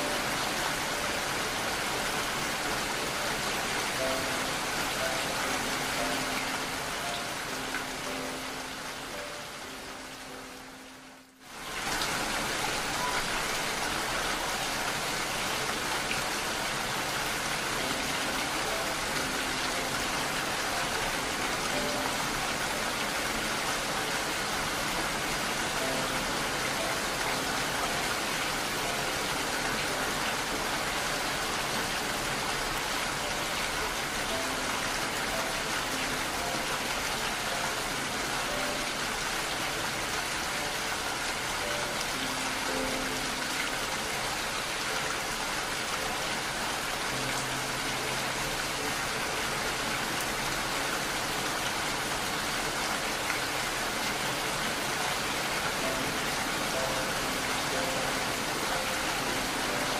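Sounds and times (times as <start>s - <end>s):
soft musical notes: 0.0s - 11.4s, 53.0s - 59.9s
rain hiss: 0.0s - 59.9s.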